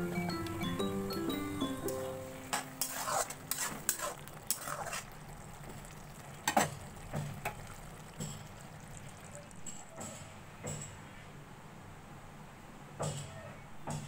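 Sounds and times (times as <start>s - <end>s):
curry sizzling: 0.0s - 10.0s
spatula scraping pan: 2.5s - 5.2s.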